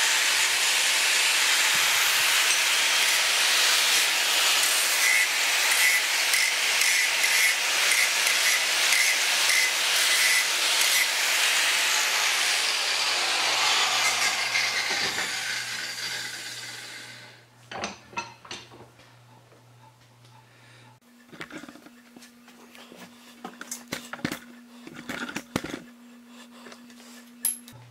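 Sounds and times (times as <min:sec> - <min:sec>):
angle grinder grinding metal: 0:00.0 - 0:17.5.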